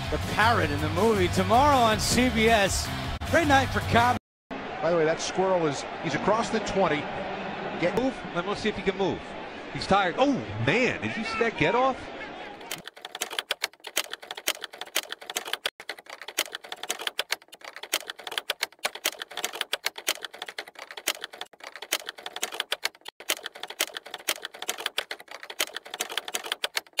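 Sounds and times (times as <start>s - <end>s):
rapid clicking and clacking: 12.7s - 27.0s.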